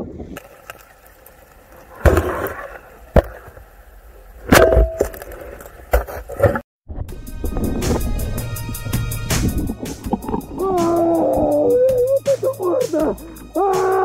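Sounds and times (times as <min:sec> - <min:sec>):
sharp knocks and thuds underwater: 0:09.5 - 0:11.0.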